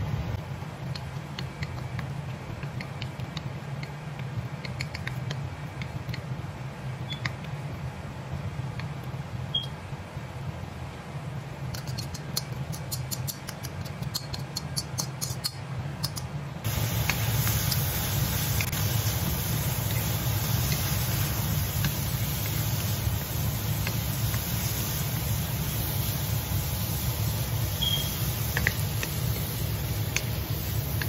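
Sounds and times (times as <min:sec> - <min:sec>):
food sizzling in wok: 0:16.6 - 0:31.0.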